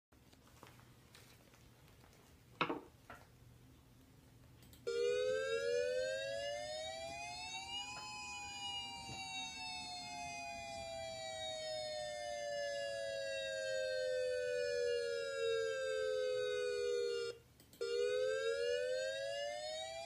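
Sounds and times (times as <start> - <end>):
siren wailing: 4.9 - 20.0.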